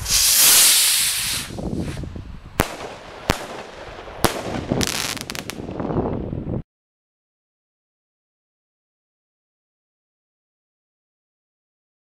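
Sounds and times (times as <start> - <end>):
firework bangs: 0.0 - 2.0, 2.6 - 5.9
firework rocket launching hiss: 0.0 - 5.6.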